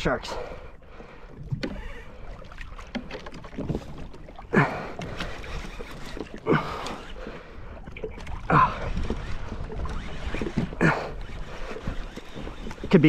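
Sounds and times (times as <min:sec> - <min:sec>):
water lapping against hull: 0:00.0 - 0:13.0
fishing reel cranking: 0:05.1 - 0:13.0.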